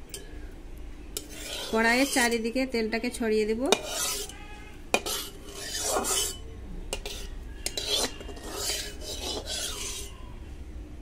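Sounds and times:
metal spatula scraping a pan: 1.2s - 2.5s, 3.7s - 10.2s.

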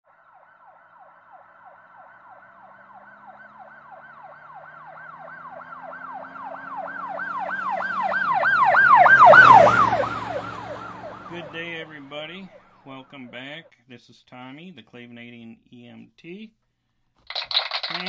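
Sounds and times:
emergency vehicle siren yelping: 0.1s - 13.1s
low engine hum: 2.0s - 12.8s.

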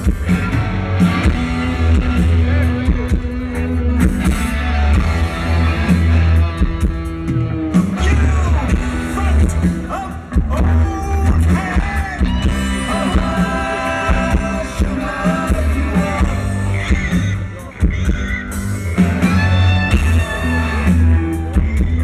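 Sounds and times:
live rock band: 0.0s - 22.0s
lead vocal singing: 9.9s - 21.9s.

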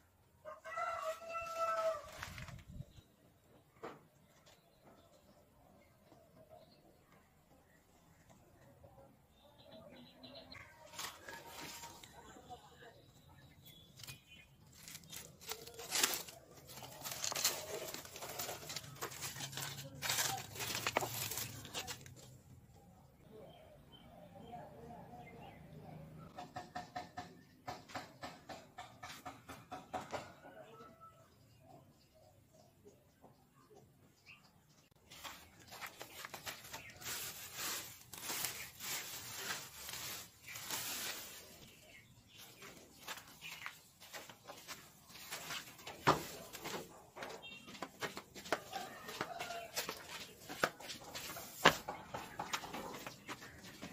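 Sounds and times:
dry leaves and twigs rustling: 0.6s - 3.0s, 10.5s - 12.7s, 13.4s - 22.5s, 35.0s - 53.9s.

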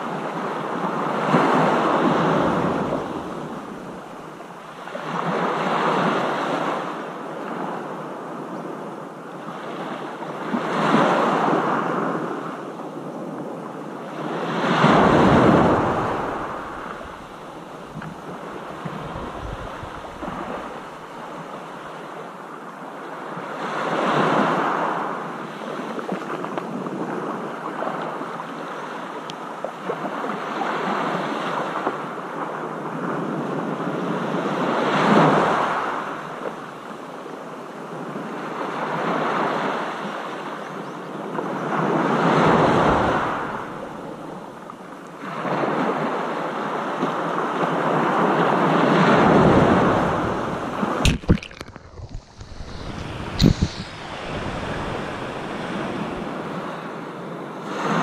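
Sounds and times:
sea waves breaking: 0.0s - 7.9s, 14.0s - 31.8s, 41.4s - 44.6s, 45.2s - 58.0s.

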